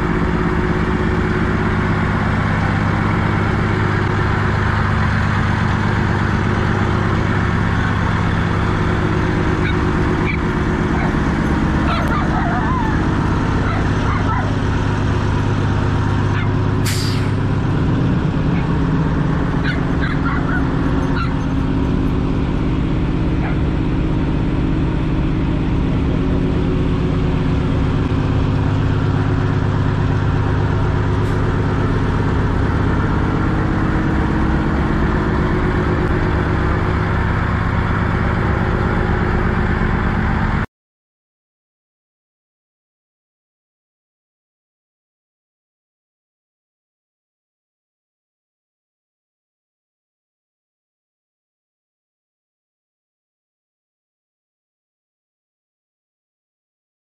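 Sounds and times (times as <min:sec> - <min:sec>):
diesel truck engine idling: 0:00.0 - 0:40.7.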